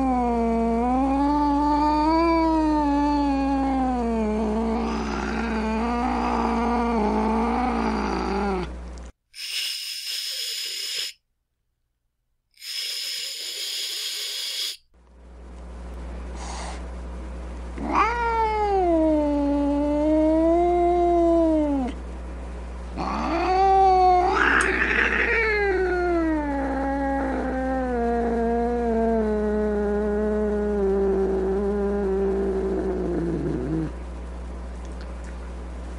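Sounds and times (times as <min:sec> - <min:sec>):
cat hissing: 0:09.4 - 0:11.2, 0:12.6 - 0:14.8, 0:23.0 - 0:28.4
cat yowling: 0:17.8 - 0:21.9, 0:23.0 - 0:28.9.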